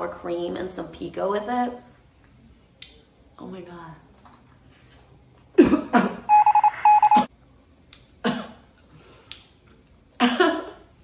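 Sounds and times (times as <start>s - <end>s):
electronic beeping: 6.3s - 7.3s.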